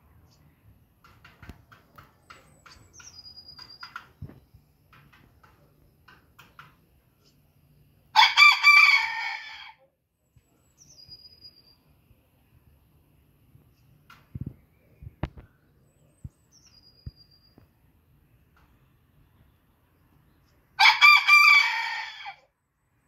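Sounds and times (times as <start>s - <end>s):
rooster crowing: 8.1s - 9.8s, 20.8s - 22.5s.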